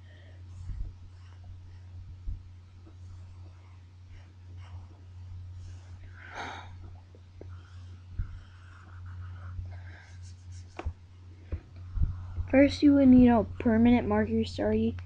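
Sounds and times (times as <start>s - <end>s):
steady low hum: 0.0s - 15.0s
marker scratching on paper: 2.9s - 6.1s, 7.4s - 11.0s.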